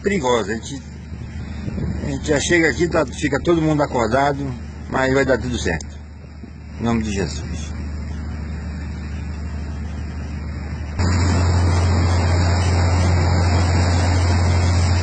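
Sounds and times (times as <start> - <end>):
boat engine drone: 0.0 - 15.0
rushing noise: 7.8 - 15.0.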